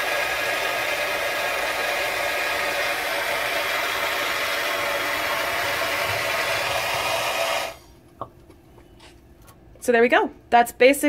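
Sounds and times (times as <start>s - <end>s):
gas torch flame hissing: 0.0s - 8.0s.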